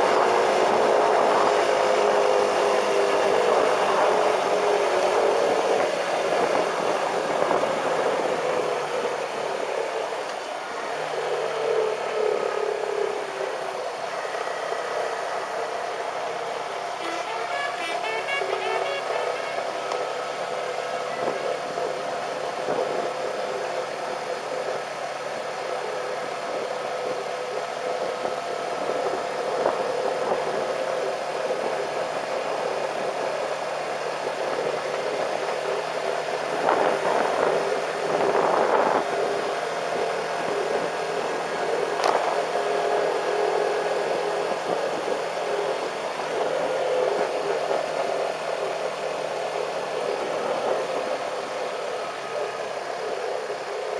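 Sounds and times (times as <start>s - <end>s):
wind noise over microphone: 0.0s - 10.2s, 21.1s - 25.0s, 27.6s - 53.9s.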